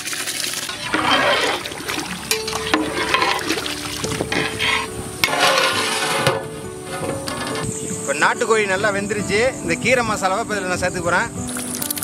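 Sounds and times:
rice poured into water: 0.0s - 4.1s.

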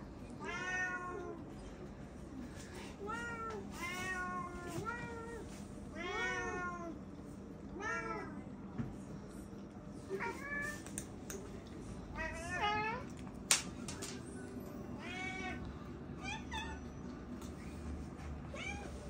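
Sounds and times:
cat meowing: 18.5s - 19.0s.

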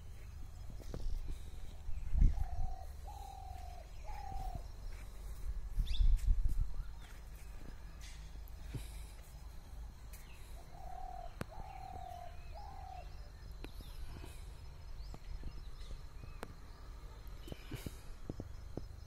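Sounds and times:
small birds chirping: 0.0s - 19.0s
steady low rumble: 0.0s - 19.0s
dove cooing: 2.2s - 4.7s, 10.6s - 13.2s.

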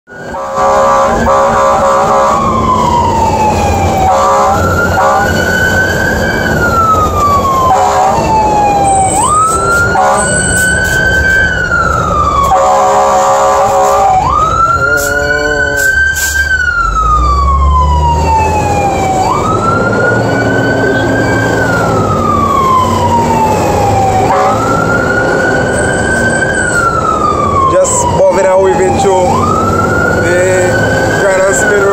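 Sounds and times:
fire engine siren wailing: 0.1s - 31.9s
truck engine: 0.1s - 31.9s
short horn blasts: 0.4s - 2.4s, 4.1s - 5.2s, 10.0s - 10.4s, 12.5s - 14.2s, 24.3s - 24.7s.

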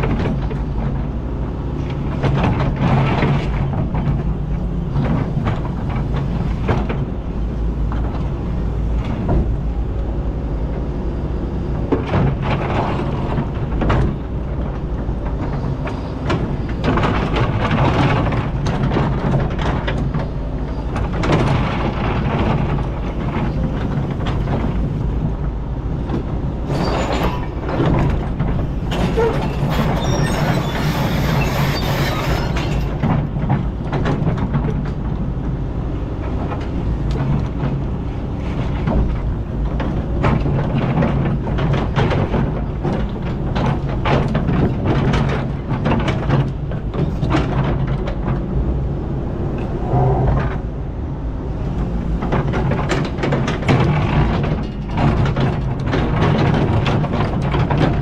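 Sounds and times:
excavator diesel engine running: 0.0s - 58.0s.

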